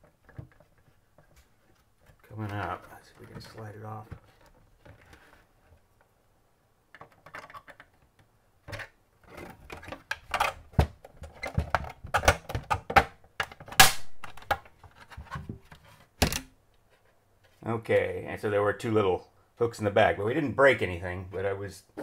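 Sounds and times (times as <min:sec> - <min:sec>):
plastic cover clicking and snapping: 0:08.7 - 0:15.1.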